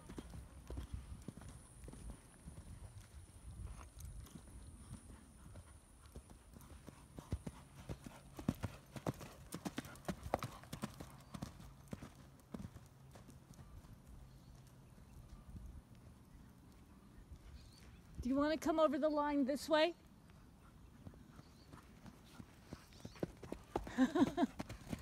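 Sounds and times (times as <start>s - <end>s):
horse hoofbeats on sand: 0.0s - 15.4s, 20.9s - 25.0s.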